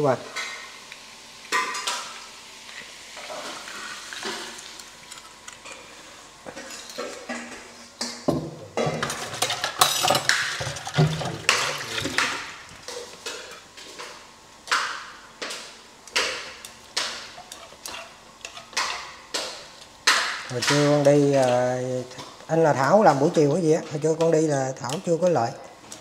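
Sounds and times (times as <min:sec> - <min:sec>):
pots clattering: 0:06.5 - 0:14.1.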